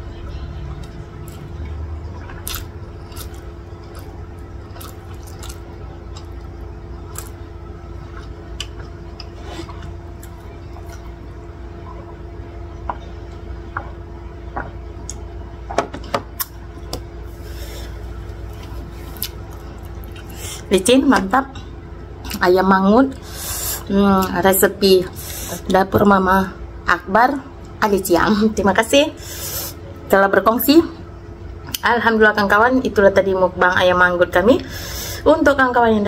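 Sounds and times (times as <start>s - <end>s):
steady low hum: 0.0s - 36.0s
chewing and licking mouth sounds: 2.2s - 6.5s.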